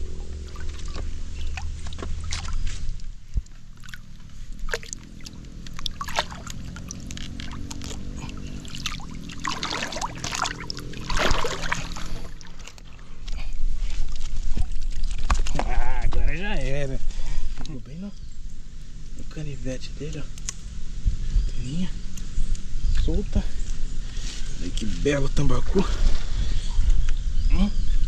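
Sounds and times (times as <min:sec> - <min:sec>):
fish splashing in water: 0:00.0 - 0:02.9, 0:03.7 - 0:13.0
low steady hum: 0:00.0 - 0:28.0.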